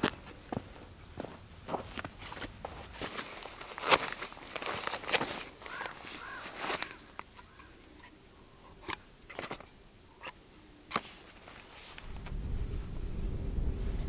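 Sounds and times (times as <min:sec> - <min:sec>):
padded lens wrap rustling: 0:01.8 - 0:12.4
lens and plastic caps clicking: 0:08.8 - 0:11.1
wind rumbling on microphone: 0:11.9 - 0:14.0.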